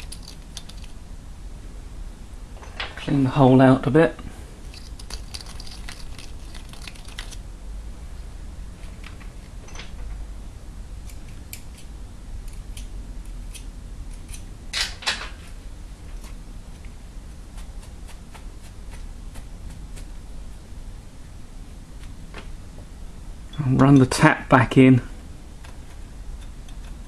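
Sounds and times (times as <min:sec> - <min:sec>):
metal clinking: 0:00.0 - 0:01.0, 0:04.6 - 0:07.4
metallic clicks of tools: 0:00.0 - 0:01.0
low steady hum: 0:00.0 - 0:27.0.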